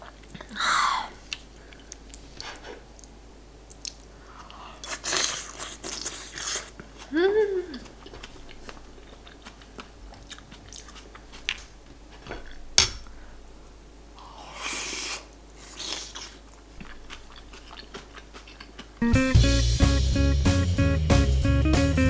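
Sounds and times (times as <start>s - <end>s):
soft chewing: 0.0s - 13.2s, 14.2s - 19.0s
slurp of broth: 14.2s - 16.4s
guitar music: 19.0s - 22.0s.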